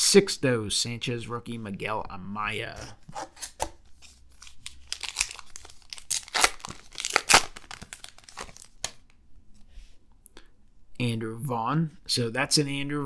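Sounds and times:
wrapper tearing and crinkling: 3.3 - 9.1.

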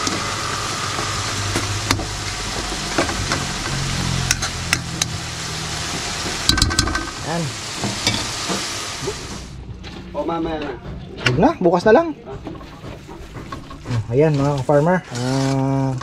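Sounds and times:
tomatoes sizzling in a wok: 0.0 - 9.6.

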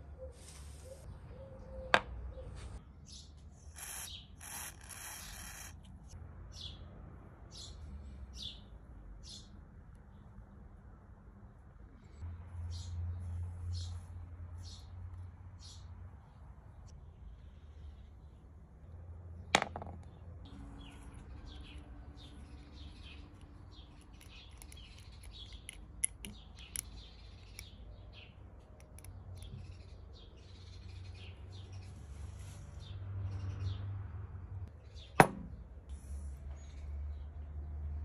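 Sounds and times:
small birds chirping: 20.1 - 33.8.

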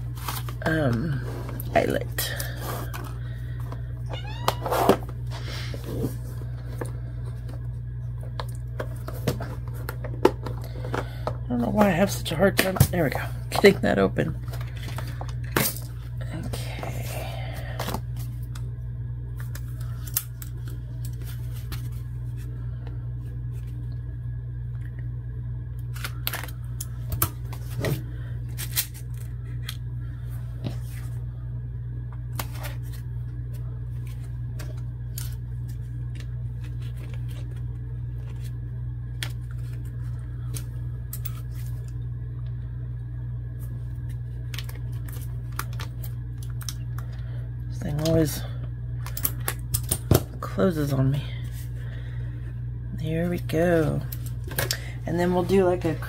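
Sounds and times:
low hum: 0.0 - 56.0.

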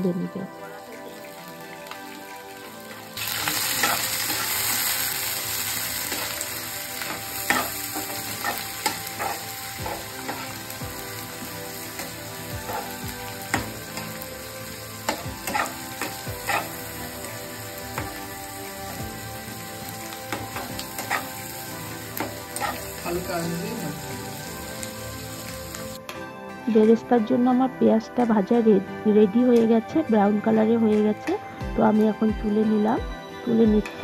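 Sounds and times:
onions sizzling in hot oil: 0.0 - 26.0
spatula scraping and tapping pan: 7.5 - 10.5, 15.1 - 16.8, 20.3 - 21.3.

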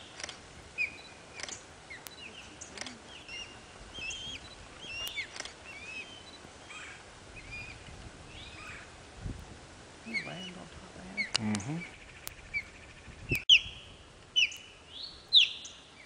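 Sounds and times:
sharp bird clicks: 0.0 - 6.4, 11.2 - 13.8, 14.4 - 15.8
ospreys whistled chirps: 0.8 - 8.8, 11.2 - 15.8.

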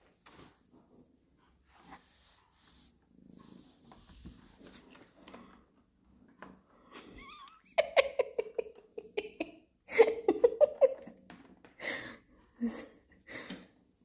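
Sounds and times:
person laughing and giggling: 7.0 - 13.5.

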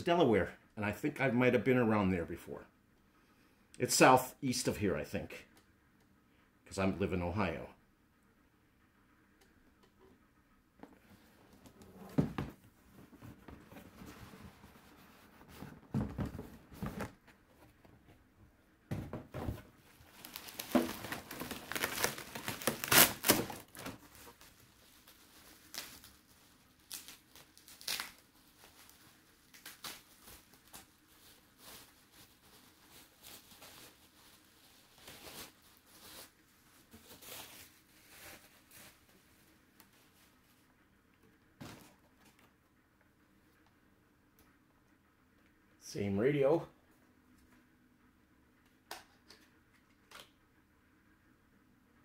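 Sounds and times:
packaging crinkling and tearing: 19.9 - 36.3.

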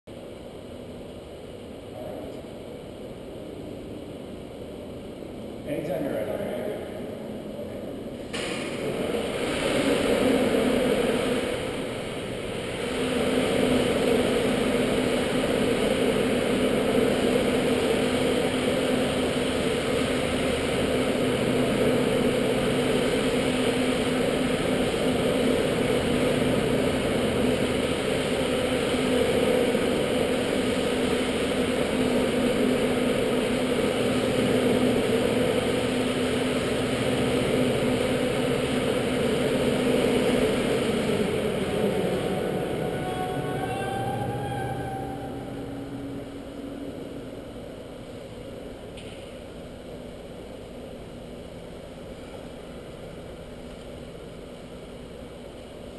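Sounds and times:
dome shutter motor humming: 8.8 - 50.1.

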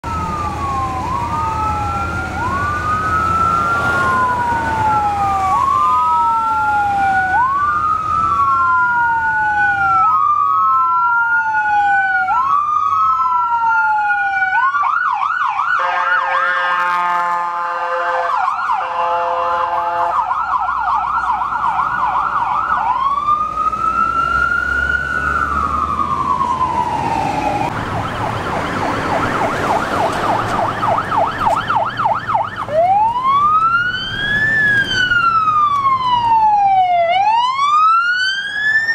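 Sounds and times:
emergency sirens wailing and yelping: 0.0 - 38.9
low rumble of street traffic: 0.0 - 38.9
steady horn-like tones: 15.8 - 20.2.

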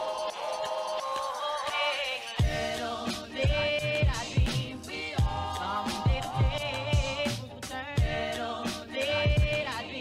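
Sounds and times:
deep kick drum: 5.2 - 5.5, 6.1 - 7.2, 8.0 - 8.2, 9.3 - 9.6.

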